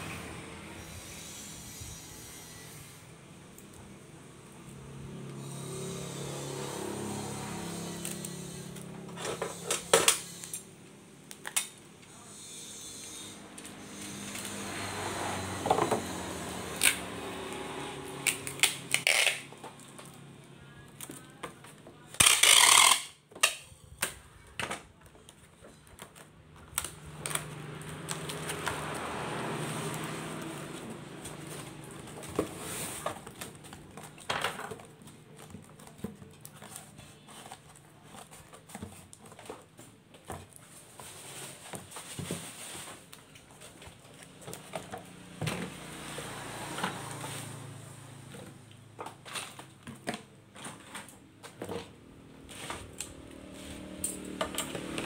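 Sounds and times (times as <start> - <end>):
packing tape tearing screech: 5.4 - 10.7, 11.3 - 19.9, 22.1 - 23.6.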